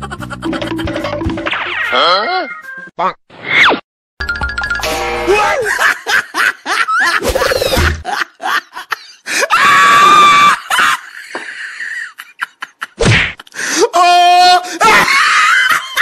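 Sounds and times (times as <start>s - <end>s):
people laughing: 5.4s - 9.3s, 10.4s - 13.6s, 14.8s - 16.0s
person screaming: 9.5s - 10.6s.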